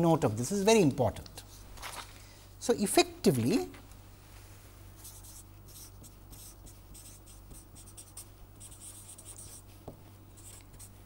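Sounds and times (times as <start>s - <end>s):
steady low hum: 0.0s - 11.0s
marker pen scratching on paper: 5.0s - 11.0s.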